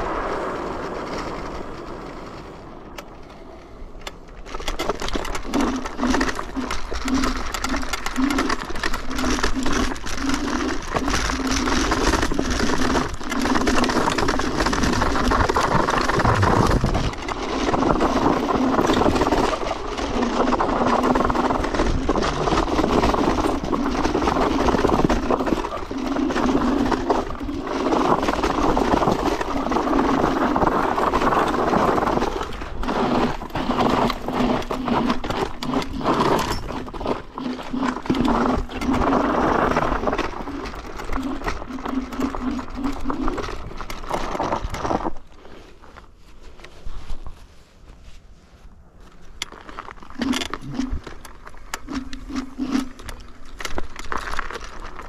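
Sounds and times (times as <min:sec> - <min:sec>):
road rumble: 0:00.0 - 0:06.9
low hum: 0:00.0 - 0:55.0
wind buffeting microphone: 0:14.4 - 0:28.5.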